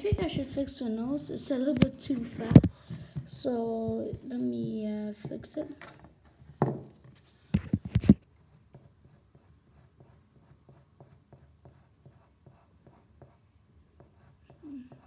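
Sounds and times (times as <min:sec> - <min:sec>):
pencil strokes on paper: 0:00.2 - 0:07.6, 0:08.3 - 0:13.4, 0:14.0 - 0:15.0
knocks and thumps against desk: 0:06.5 - 0:08.2.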